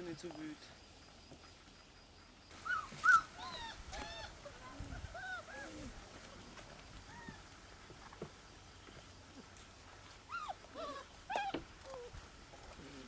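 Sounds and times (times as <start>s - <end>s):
puppies whining and yelping: 2.6s - 6.0s, 7.1s - 7.4s, 10.2s - 12.2s.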